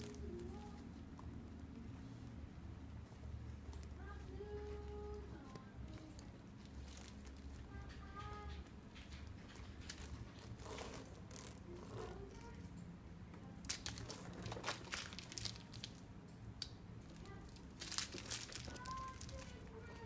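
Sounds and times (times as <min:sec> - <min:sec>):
plastic wrapping crinkling: 0:04.0 - 0:08.5, 0:13.6 - 0:16.0, 0:17.0 - 0:20.0
metal chain clinking: 0:13.7 - 0:16.0.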